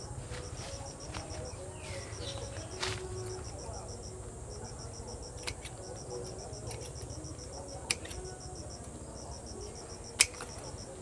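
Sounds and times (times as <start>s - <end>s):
insect chirping: 0.0s - 11.0s
pruning shears snip: 5.0s - 11.0s.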